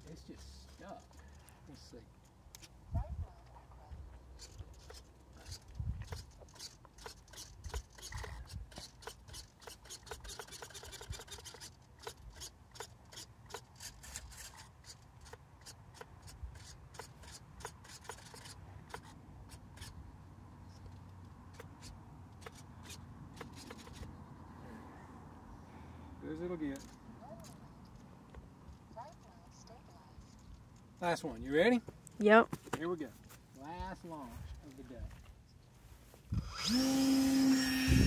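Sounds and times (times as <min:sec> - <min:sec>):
faint rapid clicking and ticking: 0:04.4 - 0:19.1.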